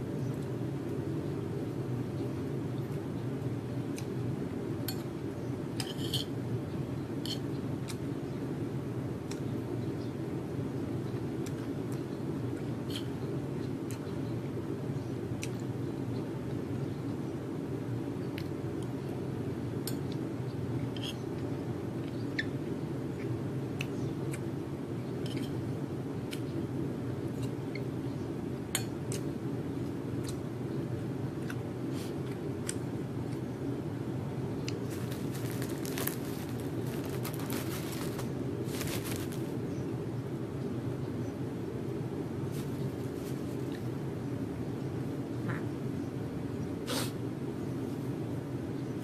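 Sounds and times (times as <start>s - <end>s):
low background hum: 0.0s - 49.0s.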